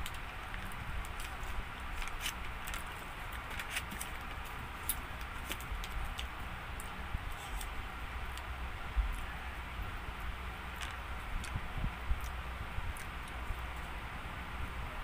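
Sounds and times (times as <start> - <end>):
paper and cardboard rustling: 0.0 - 5.9.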